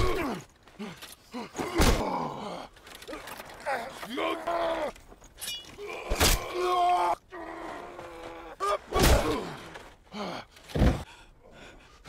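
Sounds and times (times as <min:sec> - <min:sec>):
men grunting and groaning: 0:00.0 - 0:11.1.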